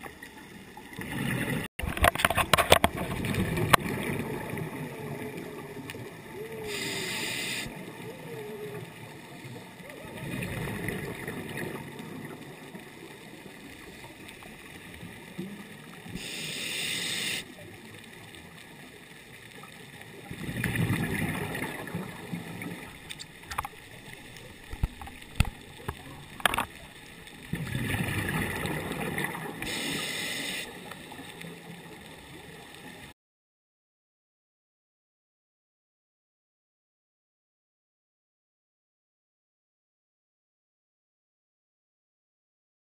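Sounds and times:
exhaled bubbles gurgling: 0:00.0 - 0:33.0
diver breathing through regulator: 0:06.6 - 0:07.8, 0:16.2 - 0:17.5, 0:29.6 - 0:30.8.

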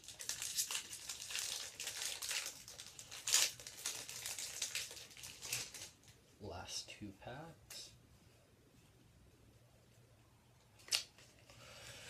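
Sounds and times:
wrapper crinkling: 0:00.0 - 0:06.2.

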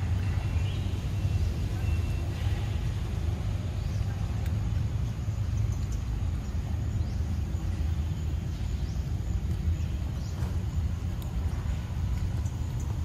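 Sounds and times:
low rumble of outdoor background: 0:00.0 - 0:13.0.

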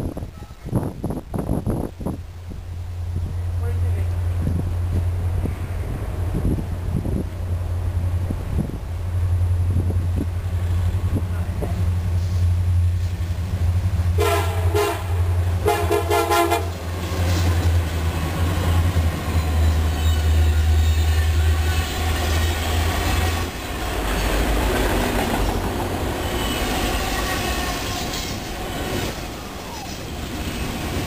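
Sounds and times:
diesel locomotive engine drone: 0:00.0 - 0:31.0
freight cars rumbling and clacking: 0:03.1 - 0:14.2, 0:15.0 - 0:31.0
train horn blasts: 0:14.2 - 0:16.8.

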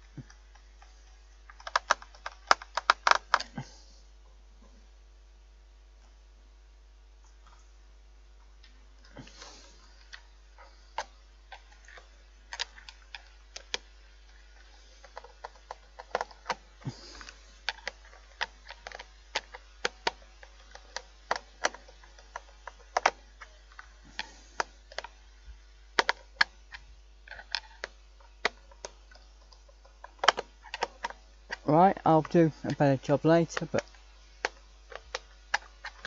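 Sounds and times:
screwdriver clicking on plastic casing: 0:26.0 - 0:31.6.

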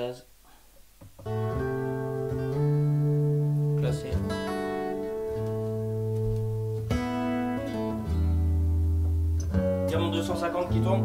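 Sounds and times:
jazz over speakers: 0:01.2 - 0:11.0.

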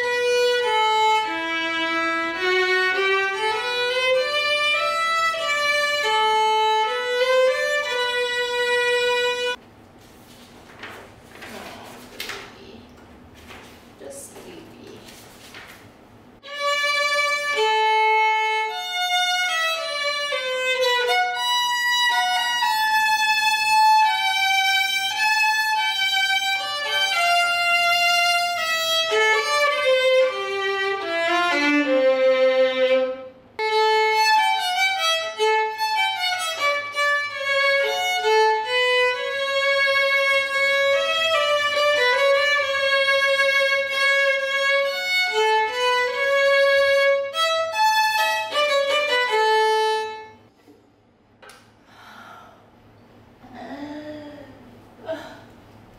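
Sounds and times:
solo violin melody: 0:00.0 - 0:09.6, 0:16.4 - 0:50.5.

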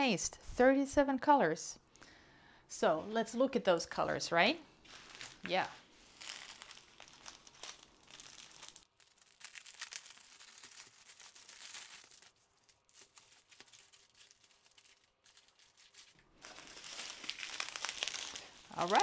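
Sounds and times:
plastic wrap crinkling: 0:04.8 - 0:19.0.

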